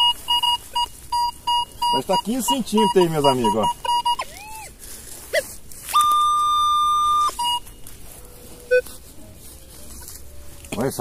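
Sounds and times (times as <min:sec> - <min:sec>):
metal detector beeping: 0:00.0 - 0:04.7, 0:05.3 - 0:09.0.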